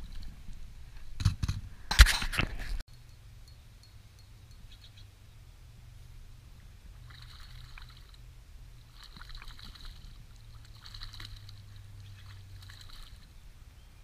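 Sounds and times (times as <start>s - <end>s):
steady low hum: 0.0s - 14.0s
fish splashing in water: 6.9s - 8.2s, 8.8s - 13.4s.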